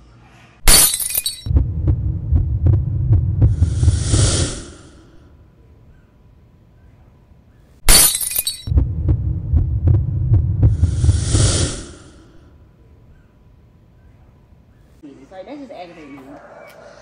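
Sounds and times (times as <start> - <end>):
throbbing low pulse: 1.5 - 4.4, 8.7 - 11.5
whoosh: 1.5 - 5.0, 8.7 - 12.4
crashing hit: 7.9 - 11.3.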